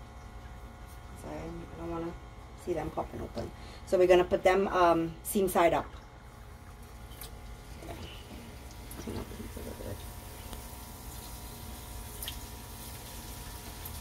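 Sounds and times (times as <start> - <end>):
oil popping and crackling: 8.6 - 11.4.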